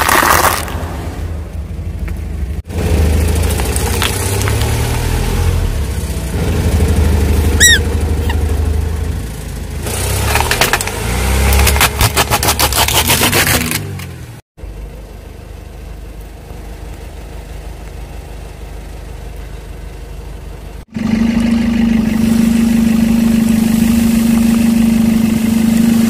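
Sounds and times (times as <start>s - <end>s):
car engine running low: 0.0s - 12.8s, 13.6s - 26.0s
toy squeaking: 7.6s - 8.4s.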